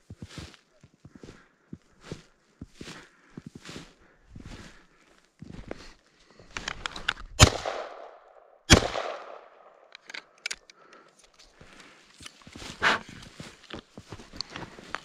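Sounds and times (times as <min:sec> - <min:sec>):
footsteps crunching through snow: 0:00.0 - 0:06.5, 0:11.4 - 0:15.0
shotgun shots with echo: 0:07.4 - 0:09.7.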